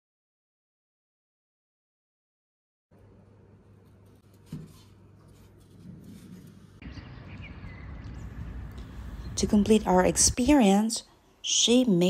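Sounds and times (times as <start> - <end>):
low hum: 5.8 - 11.4
low rumble: 6.8 - 10.5.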